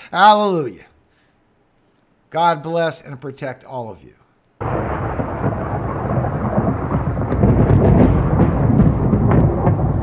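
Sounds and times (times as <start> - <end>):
rumbling thunder: 4.6 - 10.0
sharp thunder cracks: 4.6 - 10.0
steady rain: 4.6 - 10.0.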